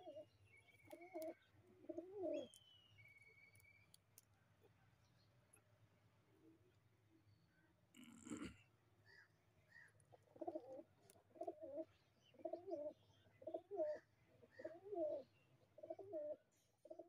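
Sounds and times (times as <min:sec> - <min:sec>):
pigeon cooing: 0:00.0 - 0:00.3, 0:00.9 - 0:02.6, 0:10.3 - 0:15.2, 0:15.8 - 0:17.0.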